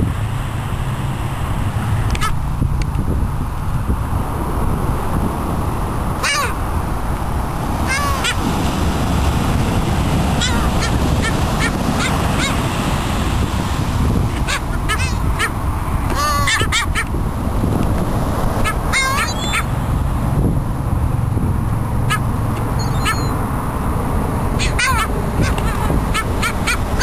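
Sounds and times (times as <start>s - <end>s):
surf and wind rush: 0.0s - 27.0s
gulls calling: 6.1s - 6.8s, 7.7s - 17.2s, 18.5s - 20.0s, 22.0s - 23.6s, 24.4s - 27.0s.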